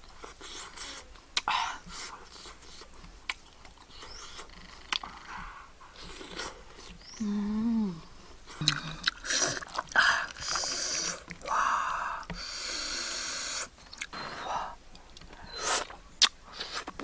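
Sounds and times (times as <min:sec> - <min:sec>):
chewing and smacking: 0:00.1 - 0:07.1, 0:08.5 - 0:11.5
person humming mmm: 0:07.2 - 0:14.8.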